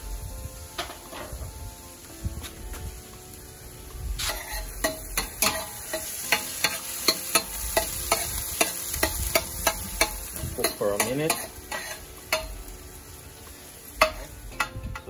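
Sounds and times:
onion sizzling in oil: 0.0s - 15.0s
metal spoon scraping a pot: 4.2s - 6.1s, 8.1s - 12.5s.

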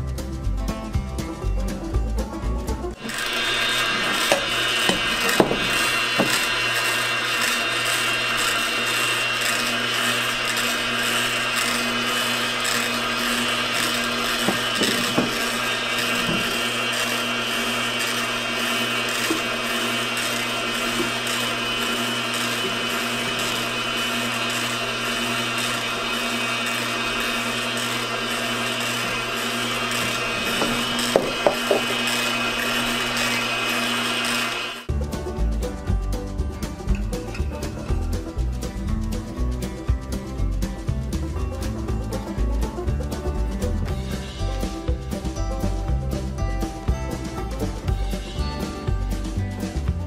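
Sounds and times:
juicer grinding vegetables: 2.9s - 34.9s.

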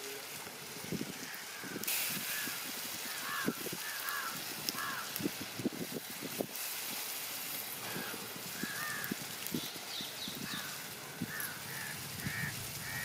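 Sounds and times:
steady hiss: 0.0s - 13.0s
bird calling: 7.8s - 13.0s.

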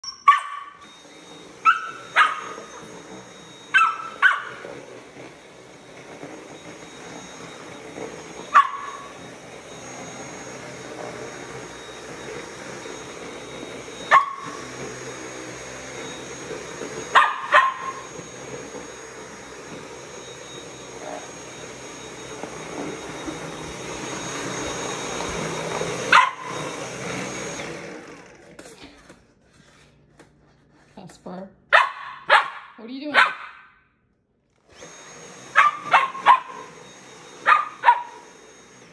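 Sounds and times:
vacuum motor whine: 0.0s - 30.8s, 34.4s - 38.9s
puppy barking: 0.1s - 0.8s, 1.6s - 2.8s, 3.7s - 4.6s, 8.5s - 9.1s, 14.1s - 14.5s, 17.2s - 18.1s, 26.1s - 26.5s, 31.7s - 33.8s, 35.5s - 36.7s, 37.4s - 38.2s.

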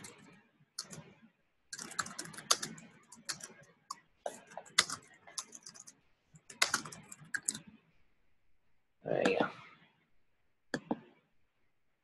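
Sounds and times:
computer keyboard typing: 0.0s - 1.1s, 1.7s - 7.7s.

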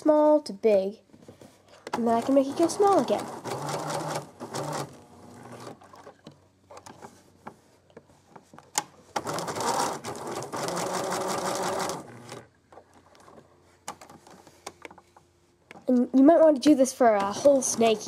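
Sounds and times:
sewing machine stitching: 1.9s - 6.2s, 9.2s - 12.5s, 17.3s - 18.0s.

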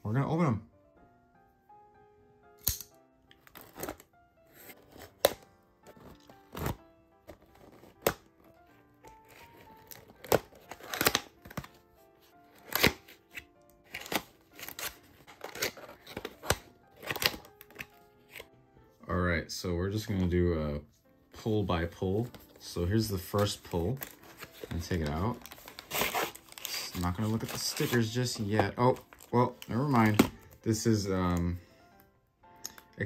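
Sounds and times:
quiet background music: 0.0s - 33.0s
cardboard tearing and snapping: 2.6s - 11.8s, 12.5s - 18.5s, 23.3s - 30.4s.

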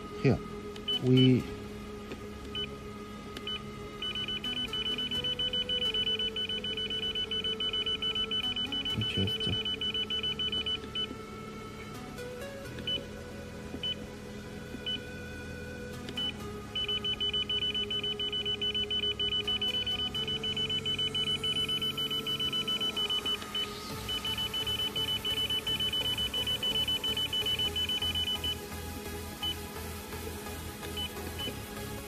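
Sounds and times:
soft background music: 0.0s - 32.0s
short high beeps: 3.5s - 11.1s.

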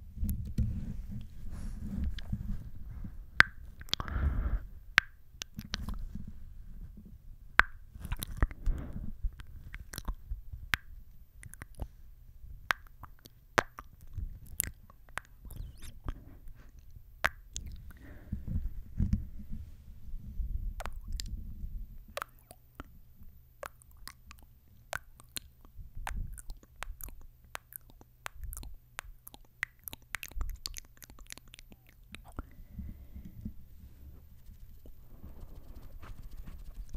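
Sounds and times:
wet kissing and lip-smacking: 8.0s - 8.6s, 9.4s - 10.2s, 11.4s - 11.9s, 12.7s - 17.8s, 22.2s - 22.9s, 23.6s - 32.4s.

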